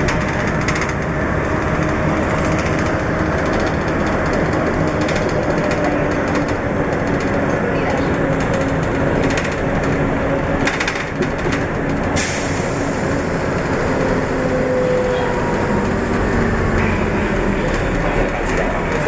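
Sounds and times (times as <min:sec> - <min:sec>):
bus engine and road drone: 0:00.0 - 0:19.0.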